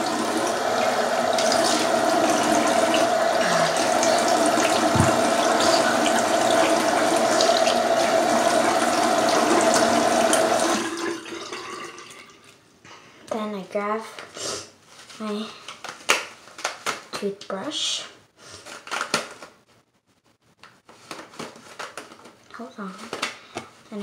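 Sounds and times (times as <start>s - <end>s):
tap running into sink: 3.7s - 10.8s.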